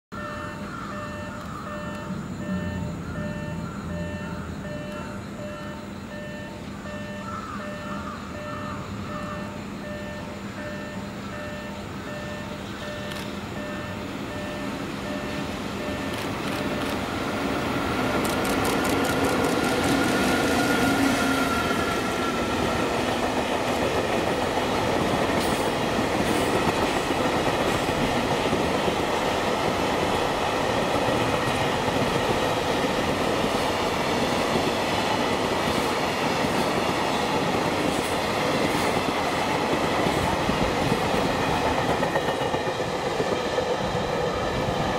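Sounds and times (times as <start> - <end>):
freight train rumble: 0.1 - 44.9
wheels clacking over rail joints: 15.9 - 44.3.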